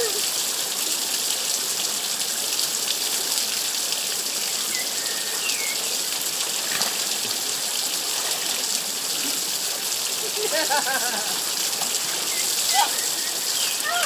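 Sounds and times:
water gushing and splashing on rocks: 0:04.2 - 0:14.0.

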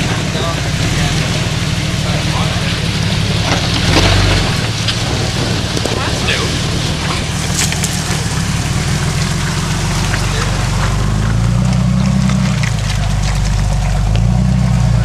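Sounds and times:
car engine revving: 0:00.0 - 0:15.0
tyres crunching on rocks and leaves: 0:00.2 - 0:15.0.

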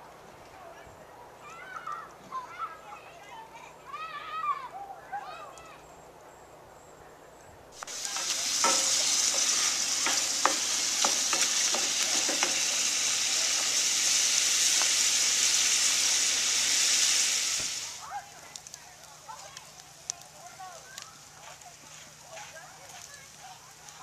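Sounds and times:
wooden spoon scraping pan: 0:07.8 - 0:15.0
food sizzling in a frying pan: 0:07.8 - 0:24.0.

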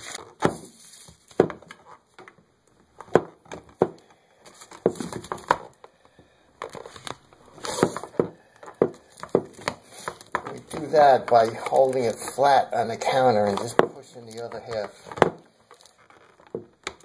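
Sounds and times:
paper rustling and crinkling: 0:06.6 - 0:16.6.

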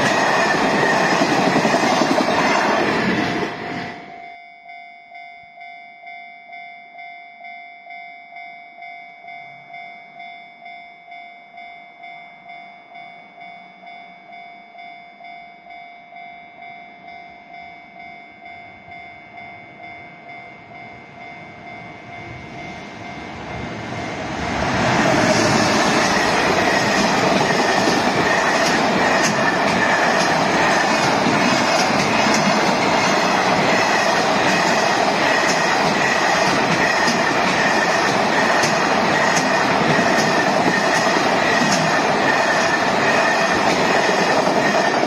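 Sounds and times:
freight train rumbling past: 0:00.0 - 0:04.1, 0:19.8 - 0:45.0
level-crossing warning bell: 0:00.0 - 0:45.0.

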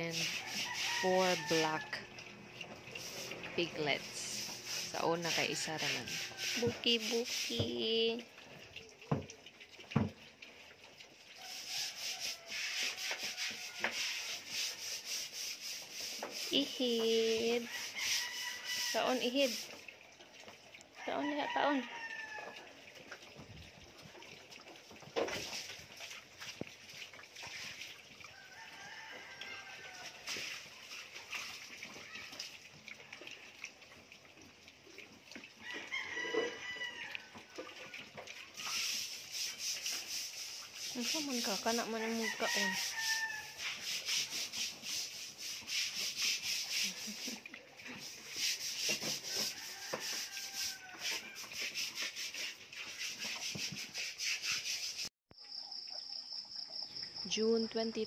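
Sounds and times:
piglets munching and scraping feed: 0:00.0 - 0:07.8, 0:09.5 - 0:19.8, 0:22.5 - 0:54.8
rooster crowing: 0:00.3 - 0:02.0, 0:05.4 - 0:06.7, 0:17.7 - 0:19.0, 0:21.0 - 0:22.6, 0:28.3 - 0:30.2, 0:35.6 - 0:37.3, 0:42.1 - 0:43.6, 0:49.3 - 0:51.5.

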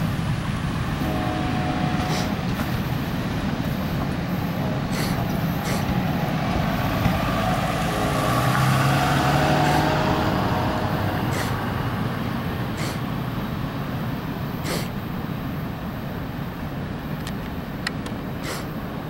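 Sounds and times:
freight train wheels rumbling: 0:00.0 - 0:19.0
sharp clicks of wheels: 0:17.2 - 0:18.8.

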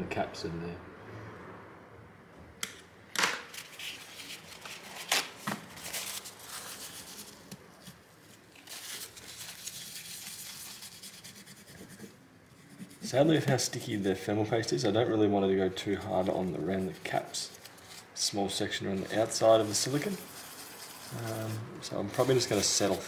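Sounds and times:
paper towel rubbing and crinkling: 0:03.5 - 0:14.8, 0:15.8 - 0:23.0
pick scraping dried paste: 0:18.9 - 0:23.0.

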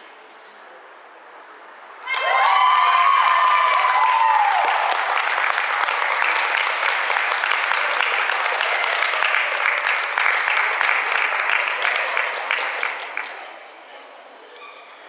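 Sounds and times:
audience cheering: 0:02.0 - 0:13.4
audience clapping: 0:02.1 - 0:13.6.

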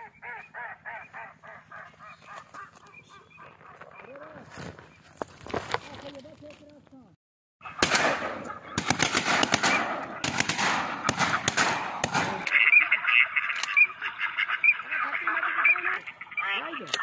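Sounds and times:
ducks quacking: 0:00.0 - 0:04.7, 0:07.6 - 0:17.0
rapid shotgun shots: 0:07.6 - 0:12.5.

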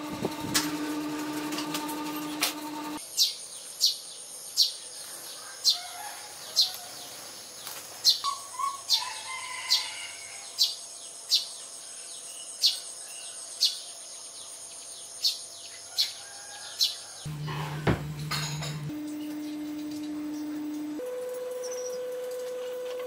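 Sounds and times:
sparrows chirping: 0:06.4 - 0:17.7.

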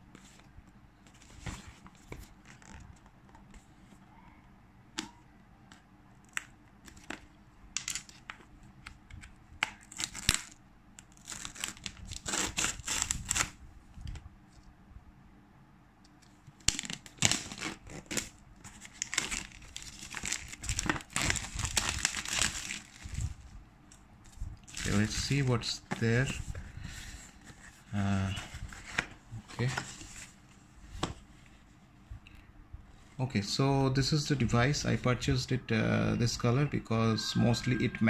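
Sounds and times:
plastic wrap tearing and crinkling: 0:09.7 - 0:13.6, 0:16.6 - 0:23.4, 0:24.6 - 0:25.2.

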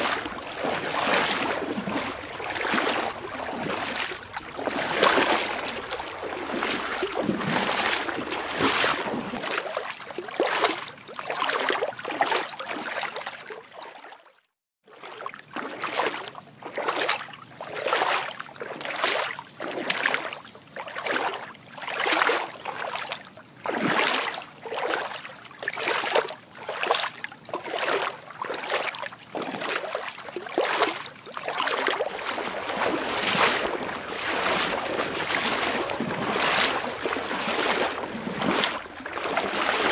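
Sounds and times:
water swishing rhythmically: 0:00.0 - 0:39.9.

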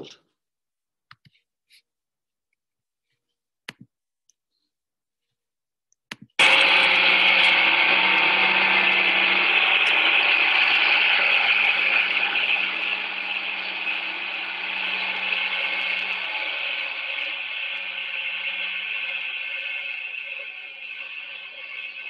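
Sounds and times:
excavator earth auger boring: 0:06.4 - 0:22.0.

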